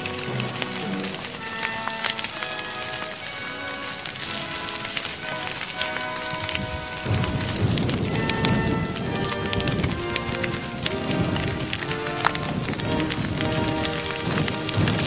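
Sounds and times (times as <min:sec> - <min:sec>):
background music: 0:00.0 - 0:15.0
fire crackling: 0:00.0 - 0:15.0
low rumbling noise: 0:04.0 - 0:15.0.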